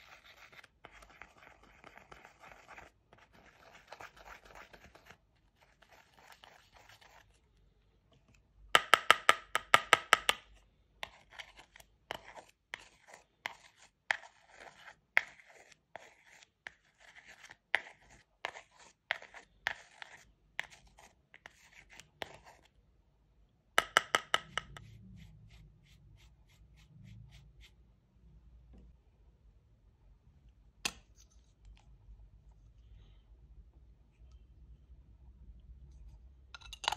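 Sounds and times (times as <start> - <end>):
plastic tool scraping eyeshadow: 0.0 - 7.4, 10.3 - 22.7.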